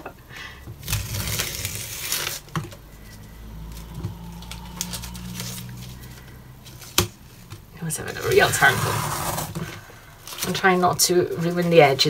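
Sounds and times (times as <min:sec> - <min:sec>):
tape crinkling and rustling: 0:00.7 - 0:12.0
masking tape peeled off paper: 0:00.8 - 0:07.5.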